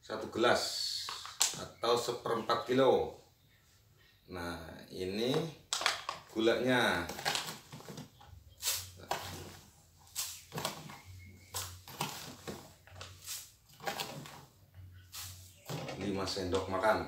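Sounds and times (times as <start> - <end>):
spoon scooping sugar: 8.5 - 16.1.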